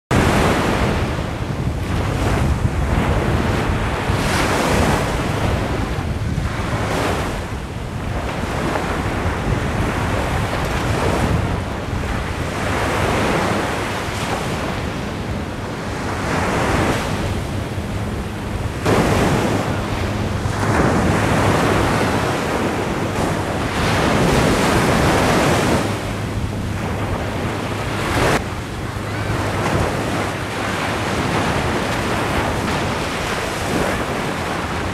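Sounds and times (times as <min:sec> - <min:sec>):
small waves breaking on sand: 0:00.1 - 0:34.9
wind buffeting microphone: 0:00.1 - 0:34.9.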